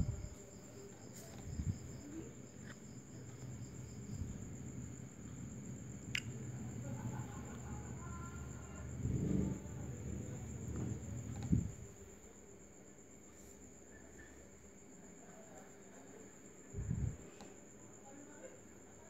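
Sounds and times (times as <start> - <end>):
crickets trilling: 0.0 - 19.0
low background rumble: 1.4 - 12.1, 16.7 - 17.2
sharp click: 6.1 - 6.3.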